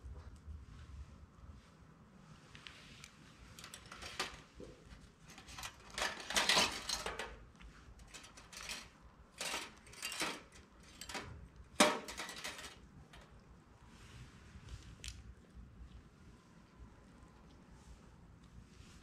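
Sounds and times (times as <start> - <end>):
metal instruments clinking on tray: 5.3 - 7.4, 8.0 - 13.2.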